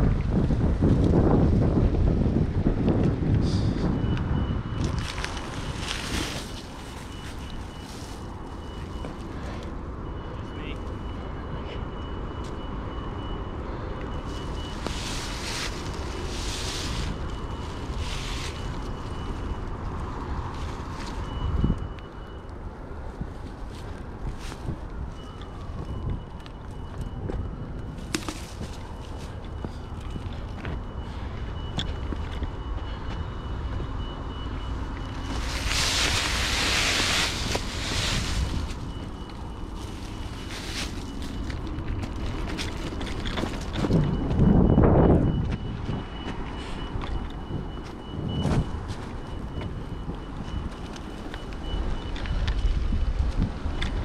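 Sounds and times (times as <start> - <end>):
bike tyres on dirt trail: 0.0 - 9.7, 14.2 - 22.2, 34.1 - 44.9
wind rumble on microphone: 0.0 - 10.2, 10.9 - 54.0.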